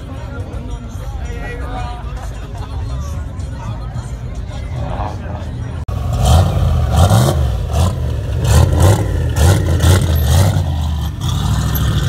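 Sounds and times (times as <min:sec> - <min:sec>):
car engine revving in blips: 0:05.9 - 0:12.0.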